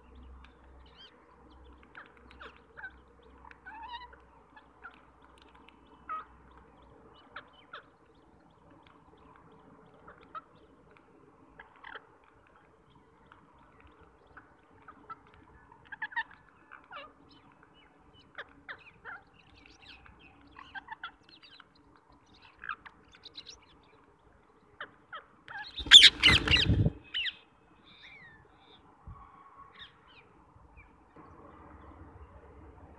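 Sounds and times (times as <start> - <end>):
parakeets chirping: 25.1 - 27.4.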